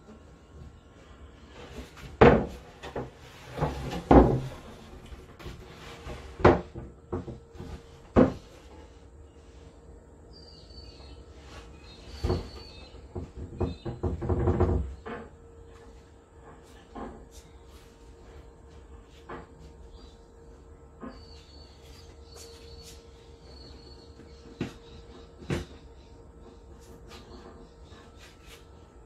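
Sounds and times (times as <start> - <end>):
wooden boards knocking: 2.2 - 4.6, 6.4 - 7.4, 12.2 - 15.2.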